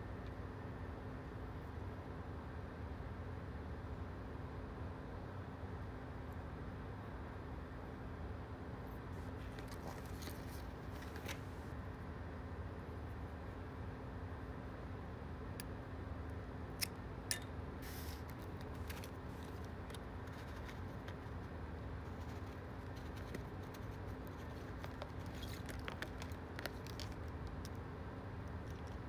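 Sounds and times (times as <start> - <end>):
steady low hum: 0.0 - 29.0
plastic packaging crinkling: 22.1 - 27.5.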